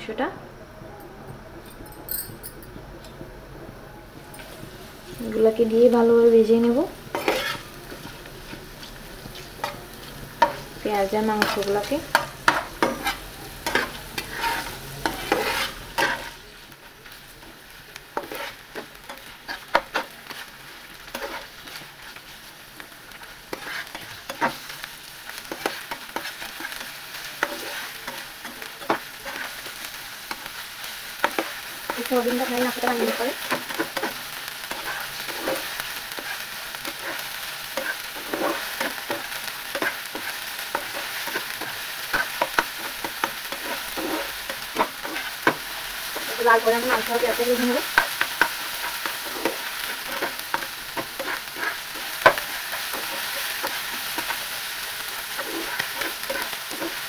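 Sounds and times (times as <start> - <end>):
meat sizzling in oil: 4.3 - 57.0
metal spatula scraping a pan: 6.5 - 16.5, 18.1 - 22.5, 23.1 - 57.0.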